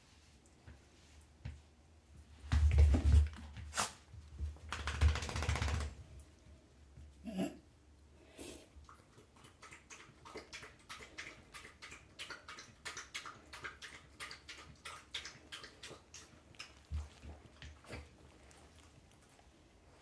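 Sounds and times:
cat licking fur: 0:08.8 - 0:20.0.

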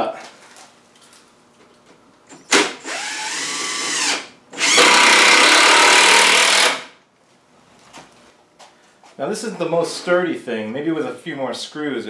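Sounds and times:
cordless drill driving screws: 0:02.3 - 0:06.9
drill click: 0:02.4 - 0:06.9.

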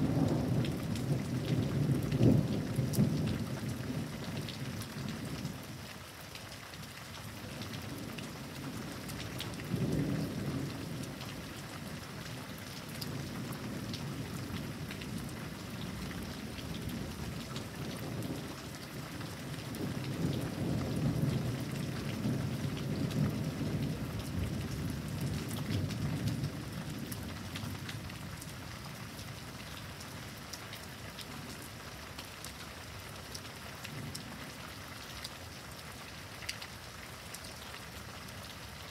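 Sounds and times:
heavy rain: 0:00.0 - 0:38.9.

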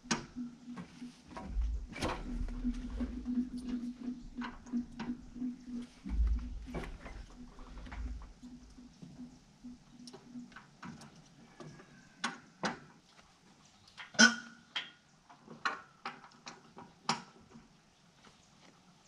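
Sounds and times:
metallic clanks and knocks: 0:00.0 - 0:09.2.

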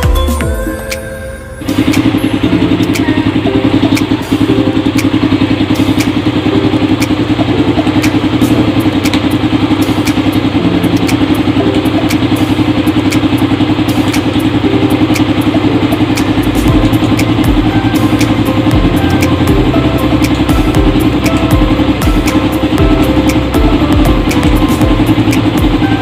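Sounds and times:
two-stroke engine idling: 0:01.7 - 0:26.0.

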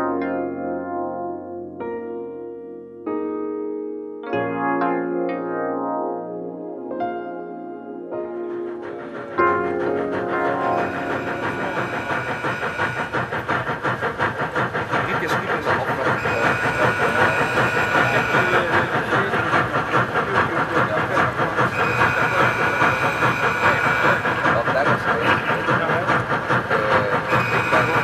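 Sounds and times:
steam engine chuffing: 0:08.2 - 0:28.0
running clatter: 0:08.6 - 0:28.0.

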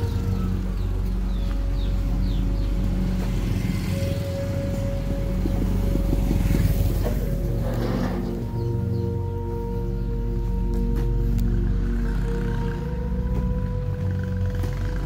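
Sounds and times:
music with long held tones: 0:00.0 - 0:15.0
small motorcycle passing: 0:00.0 - 0:15.0.

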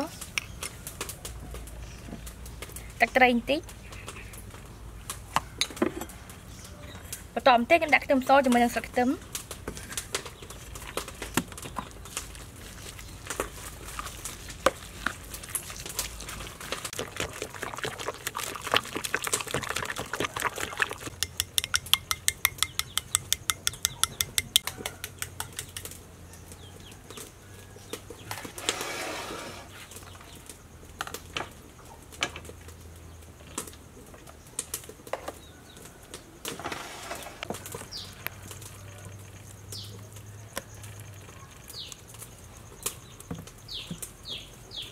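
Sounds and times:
spoon beating egg in bowl: 0:17.0 - 0:25.0
metal spoon clinking in bowls: 0:21.1 - 0:25.0.

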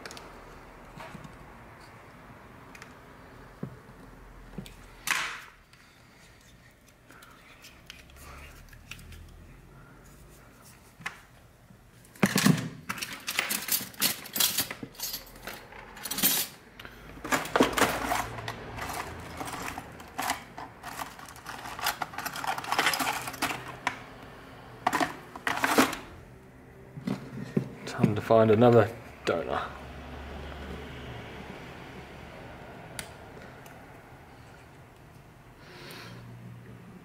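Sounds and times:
small metal objects clinking: 0:17.5 - 0:23.9.

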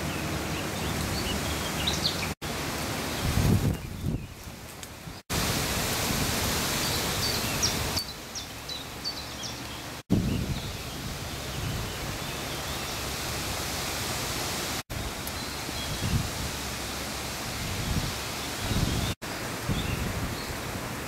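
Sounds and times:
bird chirping: 0:00.0 - 0:02.4, 0:06.8 - 0:13.1
woodland ambience hiss: 0:00.0 - 0:21.0.

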